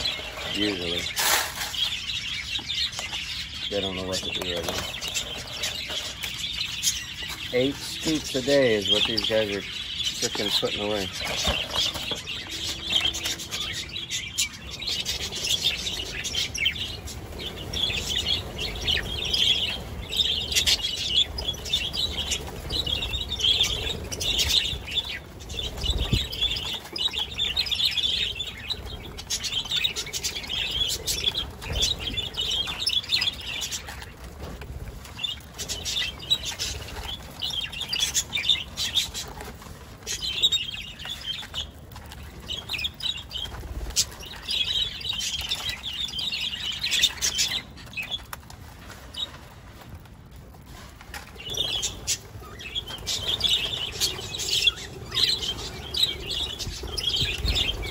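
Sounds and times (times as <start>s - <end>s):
budgerigars chattering: 0.0s - 34.1s
wings flapping: 3.8s - 57.9s.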